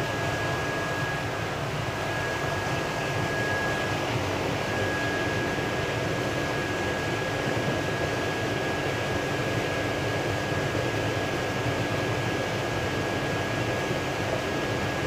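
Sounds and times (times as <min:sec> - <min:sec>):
faint high whine: 0:00.0 - 0:10.6.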